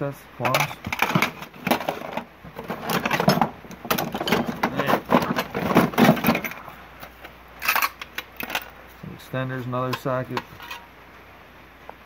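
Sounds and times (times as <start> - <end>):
metal tools clattering in drawer: 0.4 - 8.7, 10.0 - 10.9.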